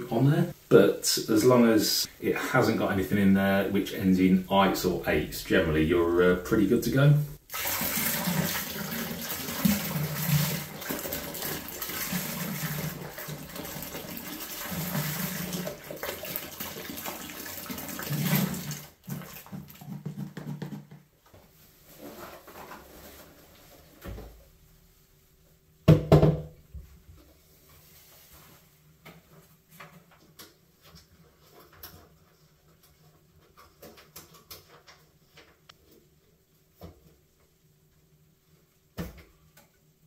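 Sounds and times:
juice splashing into steel tank: 0:07.5 - 0:20.0.

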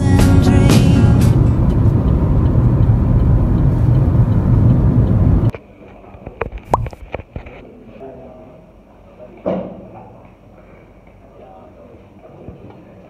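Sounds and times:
vehicle road noise rumbling: 0:00.3 - 0:05.5.

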